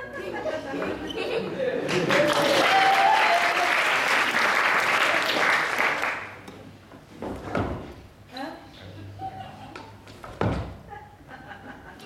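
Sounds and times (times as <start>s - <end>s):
audience applauding: 1.8s - 6.4s.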